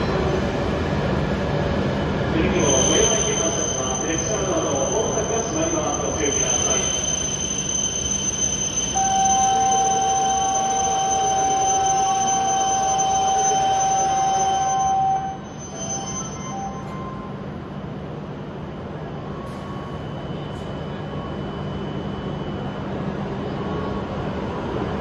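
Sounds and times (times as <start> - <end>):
door warning beep: 2.6 - 17.4.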